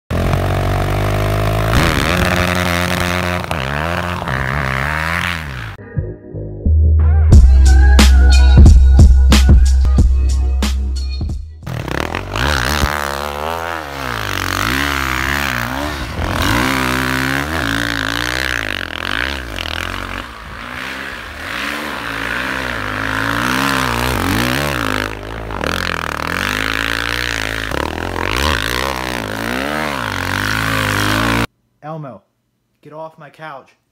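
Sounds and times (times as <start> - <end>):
dirt bike engine revving: 0.1 - 5.8, 11.6 - 31.5.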